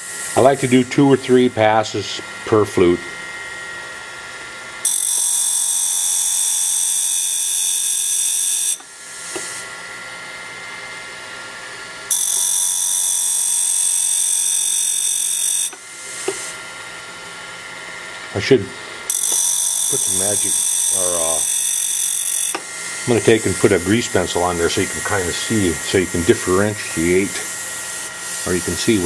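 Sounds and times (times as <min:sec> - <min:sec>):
high-pitched grinding hiss: 0:00.0 - 0:01.5, 0:18.4 - 0:29.0
grinding wheel motor running: 0:17.6 - 0:29.0.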